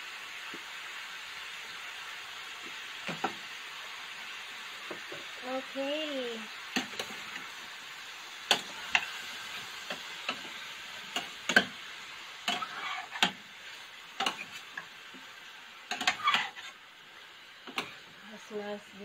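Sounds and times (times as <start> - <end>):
chicken sizzling: 0.0 - 19.0
metal spoon clinking on pan: 15.9 - 16.5.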